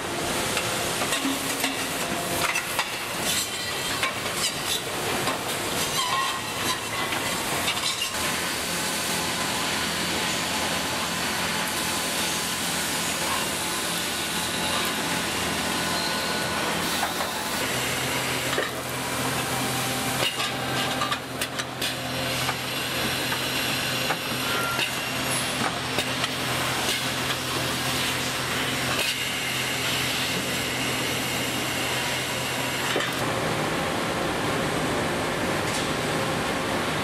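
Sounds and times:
machinery low hum: 0:08.5 - 0:37.0.

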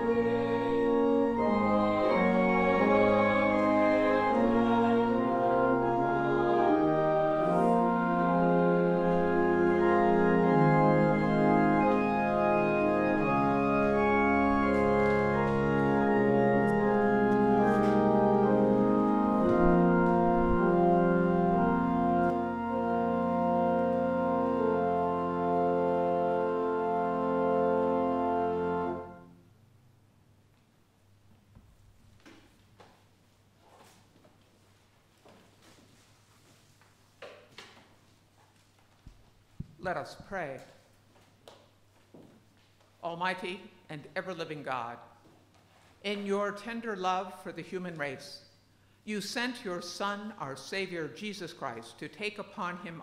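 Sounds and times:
organ playing sustained chords: 0:00.0 - 0:29.6.

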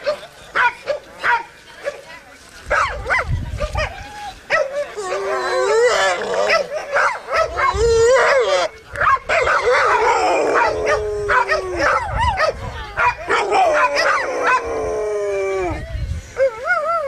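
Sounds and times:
dogs barking and yelping: 0:02.7 - 0:17.0
dogs whining: 0:07.5 - 0:08.7.

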